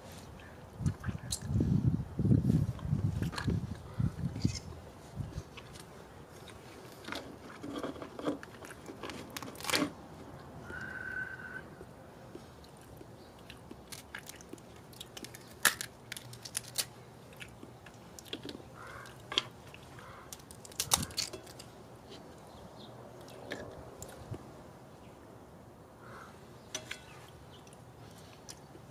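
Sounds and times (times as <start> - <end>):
chewing and crunching: 2.7 - 10.6, 12.2 - 22.4, 23.1 - 24.4
crab shell cracking and snapping: 8.4 - 9.9, 12.8 - 19.6, 20.3 - 21.7.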